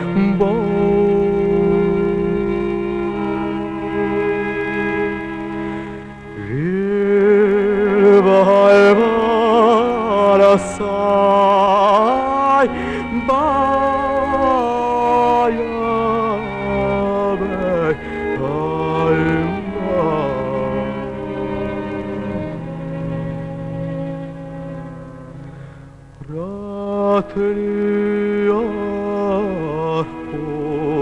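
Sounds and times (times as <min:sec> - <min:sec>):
man singing with vibrato: 0:00.0 - 0:05.0, 0:06.3 - 0:23.6, 0:26.2 - 0:31.0
instrumental drone: 0:00.0 - 0:26.9.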